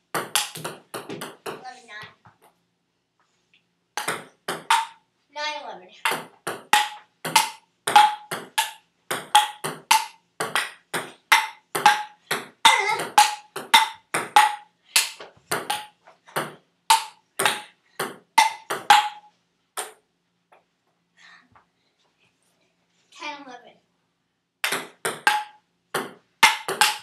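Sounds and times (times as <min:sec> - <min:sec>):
table tennis ball hitting paddles: 0:00.1 - 0:02.5, 0:04.0 - 0:05.0, 0:06.0 - 0:20.0, 0:24.6 - 0:27.0.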